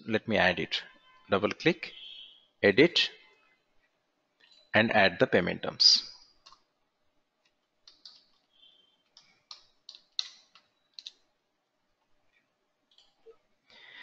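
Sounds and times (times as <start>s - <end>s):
mouse and keyboard clicks: 6.4s - 6.7s, 7.4s - 8.4s, 9.2s - 11.2s.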